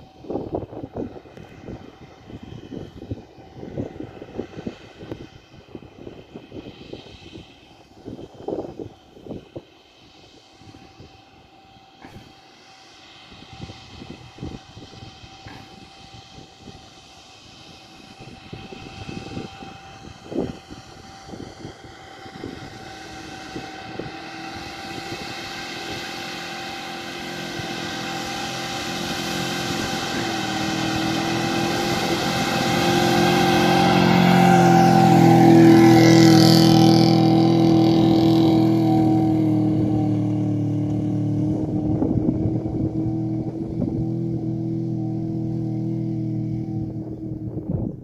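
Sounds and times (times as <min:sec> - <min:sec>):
car engine pulling under load: 0:15.4 - 0:48.0.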